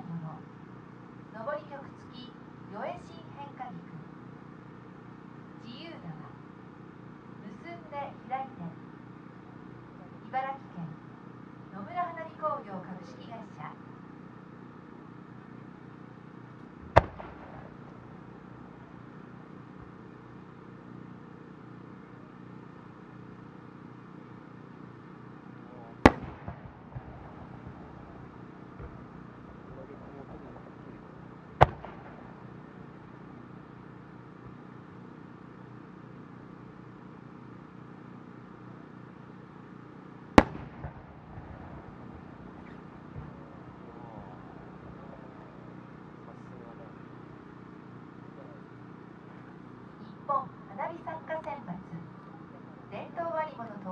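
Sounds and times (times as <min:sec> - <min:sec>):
low steady background: 0:00.0 - 0:53.9
fireworks shell boom: 0:16.8 - 0:17.8, 0:31.6 - 0:32.4
faint firework reports: 0:16.8 - 0:20.2, 0:25.5 - 0:34.0, 0:40.4 - 0:47.7.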